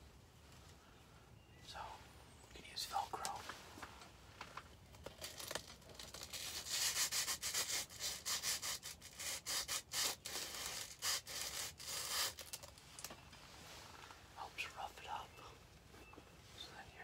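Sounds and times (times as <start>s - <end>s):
plastic bag crinkling: 4.9s - 6.7s.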